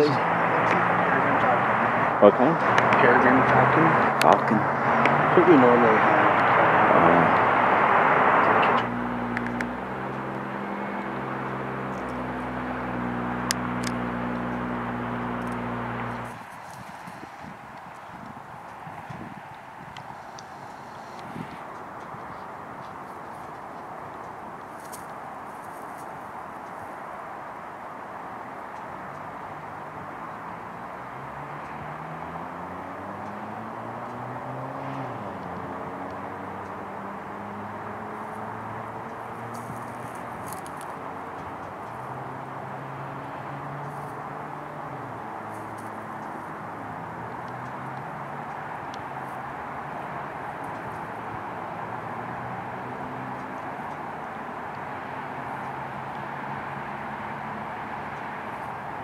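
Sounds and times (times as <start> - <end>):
loud rushing noise: 0.0 - 22.7
low engine hum: 0.0 - 59.0.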